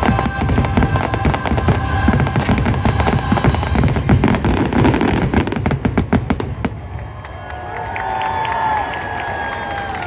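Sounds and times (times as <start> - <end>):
fireworks shells booming: 0.0 - 6.9
fireworks sharp cracks: 0.0 - 7.2.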